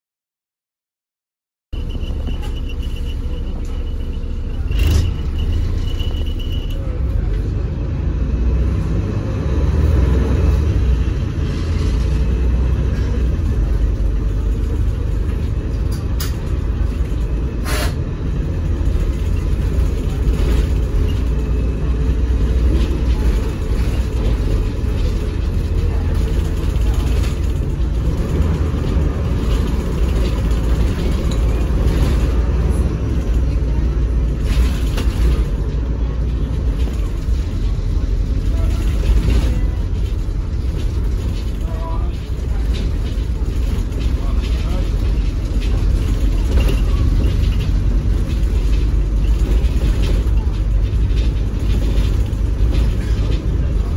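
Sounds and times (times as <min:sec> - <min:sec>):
bus engine rumble: 0:01.7 - 0:53.9.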